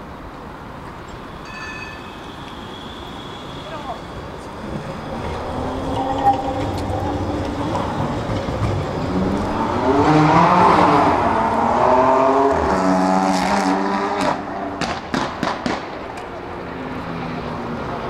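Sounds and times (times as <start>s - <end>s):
tram motor whine: 0.8s - 11.8s.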